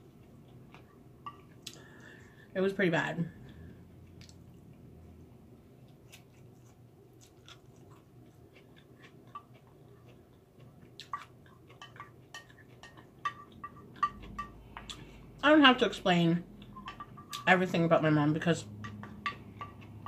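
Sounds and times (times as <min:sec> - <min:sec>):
person chewing: 0:05.8 - 0:15.3
spoon scraping a glass dish: 0:16.7 - 0:17.6.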